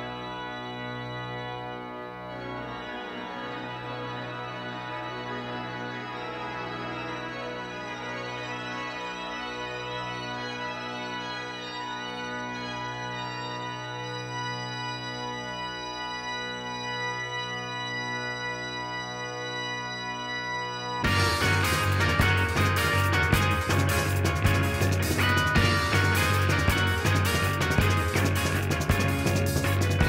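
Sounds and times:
organ chords: 0.0 - 30.0.

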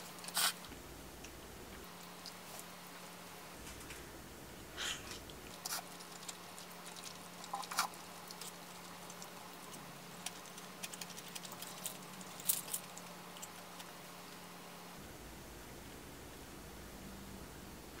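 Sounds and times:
low steady hum: 0.0 - 18.0
faint chewing: 4.9 - 14.4.

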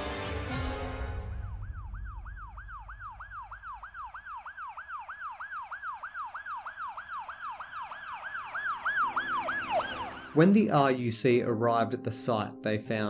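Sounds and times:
siren yelping: 1.2 - 10.6.

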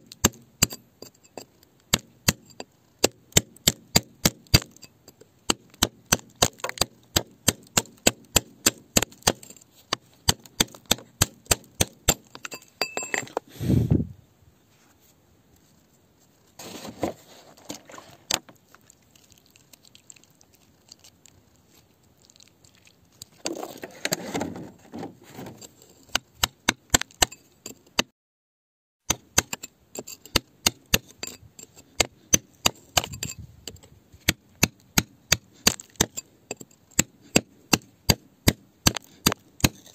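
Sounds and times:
iron bar striking rock: 5.5 - 13.4
rough scraping: 16.4 - 18.9, 23.4 - 26.1.

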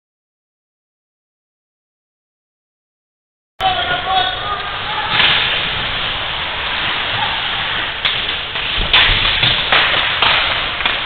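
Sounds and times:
rink background noise: 3.6 - 11.0
skates scraping on ice: 3.8 - 11.0
hockey stick hitting puck: 5.1 - 11.0.

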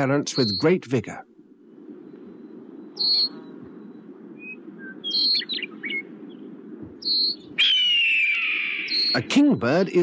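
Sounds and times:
blackbird alarm calls: 0.3 - 0.8, 2.3 - 9.8.

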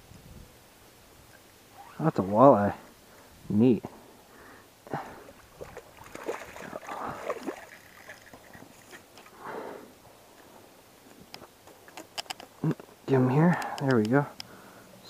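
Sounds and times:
fish splashing in water: 5.4 - 9.1.

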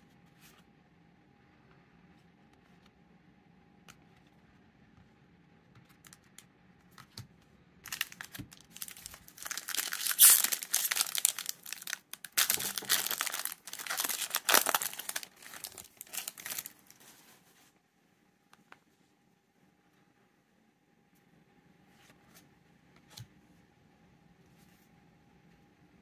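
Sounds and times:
wrapper tearing and crinkling: 7.9 - 17.1.

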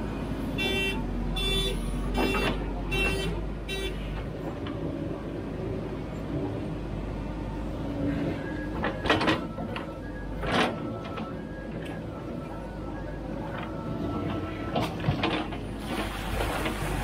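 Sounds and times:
backhoe digging in wet mud: 14.8 - 17.0.

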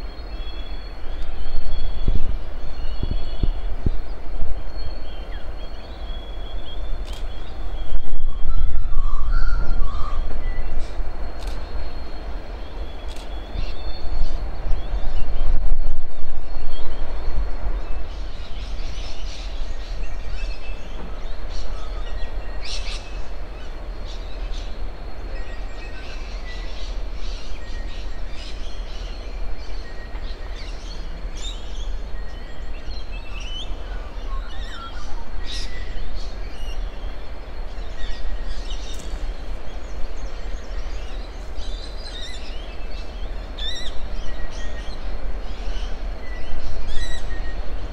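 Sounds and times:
birds chirping: 0.0 - 15.6.

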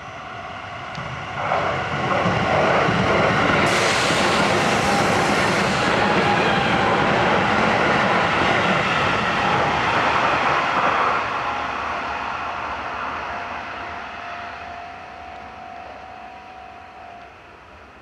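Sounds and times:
train wheels on rails: 0.9 - 12.7.

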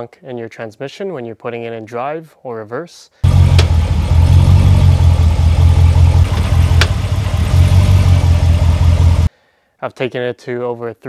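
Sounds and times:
pickup engine idling: 3.2 - 9.3
sharp driveline knocks: 3.3 - 4.0, 6.2 - 7.2.

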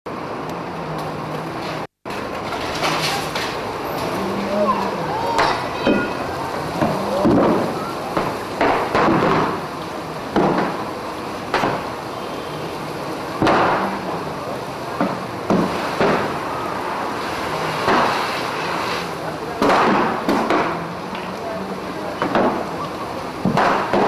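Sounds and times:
fire rushing noise: 0.1 - 24.0
sharp bangs and knocks: 6.8 - 9.7, 10.3 - 10.9, 11.5 - 11.9, 17.8 - 18.4, 19.6 - 20.8, 23.4 - 24.0.

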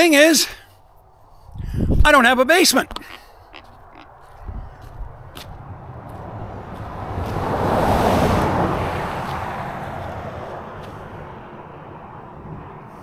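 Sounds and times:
car passing at speed: 4.5 - 13.0.

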